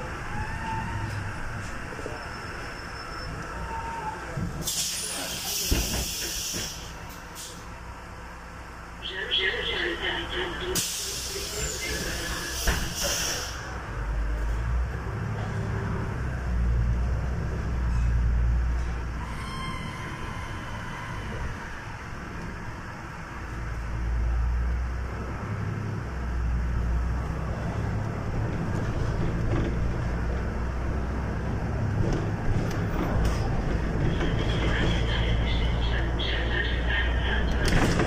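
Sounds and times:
bus engine and road rumble: 0:00.0 - 0:38.0
air brake hiss: 0:04.6 - 0:07.6, 0:10.8 - 0:13.7.

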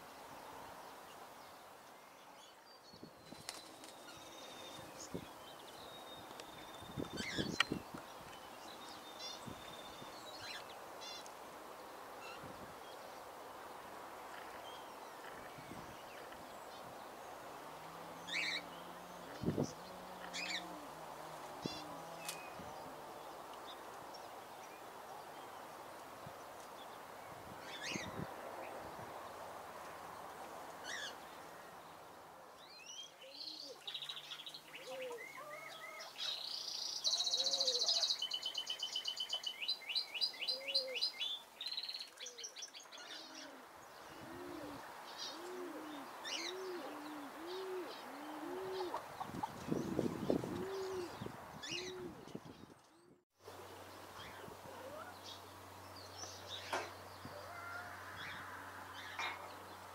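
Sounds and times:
small birds chirping: 0:32.6 - 0:57.6
dove cooing: 0:37.3 - 0:38.0, 0:43.1 - 0:49.2, 0:50.4 - 0:52.2.

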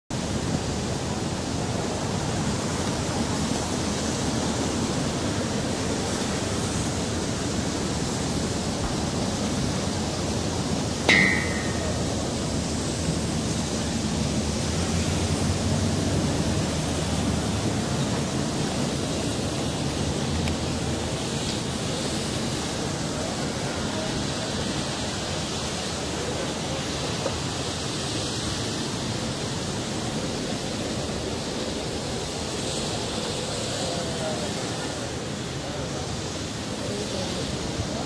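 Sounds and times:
outdoor background hiss: 0:00.2 - 0:38.0
sharp metallic clink: 0:11.1 - 0:12.3.

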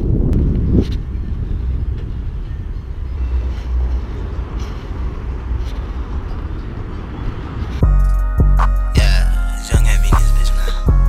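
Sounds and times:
wind noise on microphone: 0:00.0 - 0:08.0.

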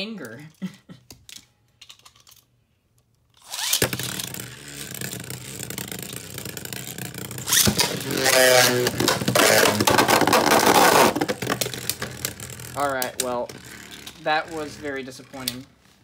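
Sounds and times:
launcher pitched whirr: 0:03.4 - 0:12.8
spinning top whirring: 0:03.4 - 0:15.6.

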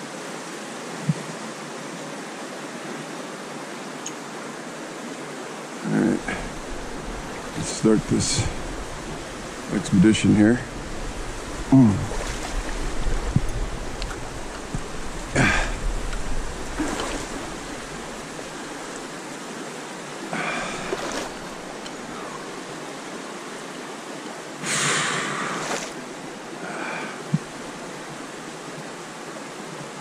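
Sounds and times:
stream running: 0:00.0 - 0:30.0
splashing water: 0:06.0 - 0:19.4, 0:20.3 - 0:22.7, 0:24.8 - 0:28.0.

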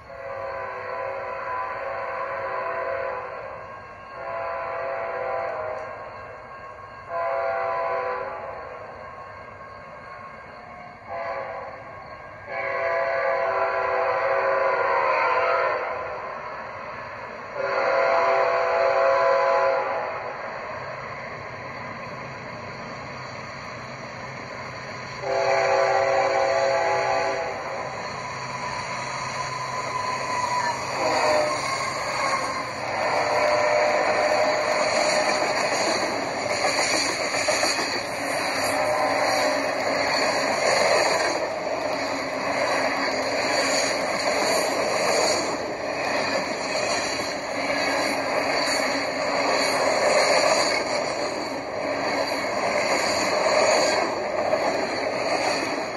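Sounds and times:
model locomotive horn: 0:00.0 - 0:06.0, 0:07.1 - 0:08.8, 0:10.9 - 0:16.2, 0:17.5 - 0:20.3, 0:25.2 - 0:27.9, 0:29.3 - 0:35.9, 0:38.6 - 0:39.8
model locomotive running whine: 0:00.0 - 0:55.9.

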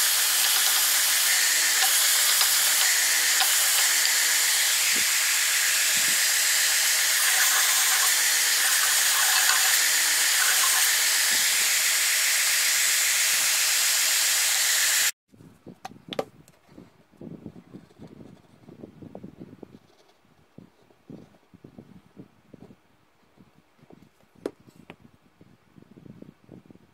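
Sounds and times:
belt sander sanding wood: 0:00.0 - 0:15.1.

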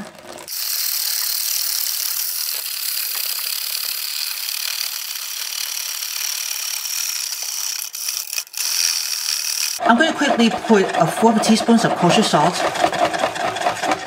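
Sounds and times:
wire whisk scraping a mixing bowl: 0:04.3 - 0:14.0.

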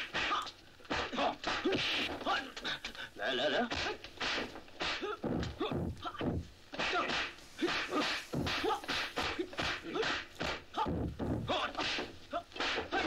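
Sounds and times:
fighters grunting and shouting: 0:00.1 - 0:13.0
punch thwacks: 0:03.7 - 0:05.5, 0:06.8 - 0:10.6, 0:11.7 - 0:13.0
whooshing swishes: 0:07.1 - 0:09.9.

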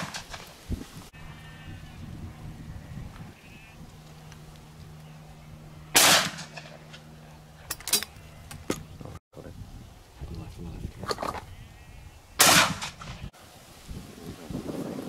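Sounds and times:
shotgun shot: 0:06.0 - 0:06.7, 0:12.4 - 0:13.2.

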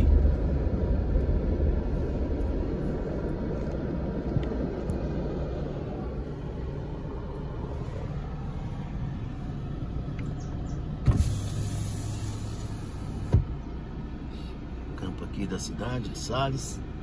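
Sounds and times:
car interior rumble: 0:00.0 - 0:17.0
hum and hiss: 0:11.0 - 0:14.8.

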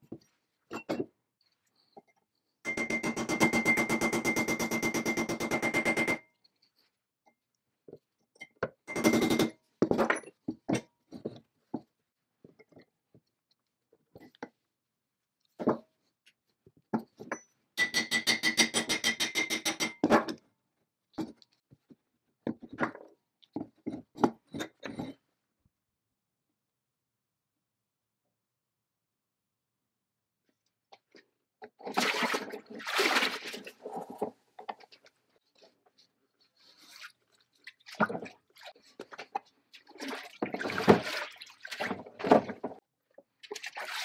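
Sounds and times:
tools clicking and tapping: 0:02.0 - 0:06.6, 0:08.4 - 0:11.9, 0:17.0 - 0:20.5.

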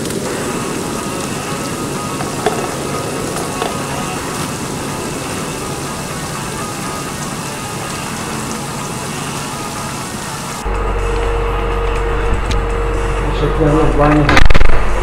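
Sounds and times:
water jets spraying into pool: 0:00.0 - 0:10.7.

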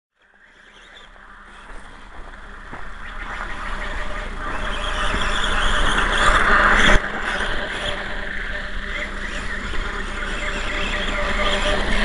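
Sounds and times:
toy motorcycle motor whining: 0:03.6 - 0:12.0.

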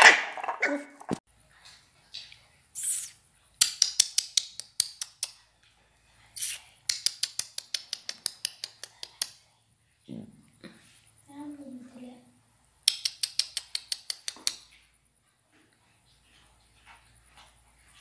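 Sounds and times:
short hiss: 0:02.8 - 0:03.2, 0:06.4 - 0:06.6.

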